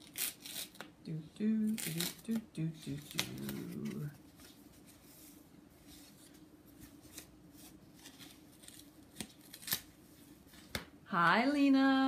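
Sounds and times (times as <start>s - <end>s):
paper and plastic wrapping rustling: 1.7s - 10.8s.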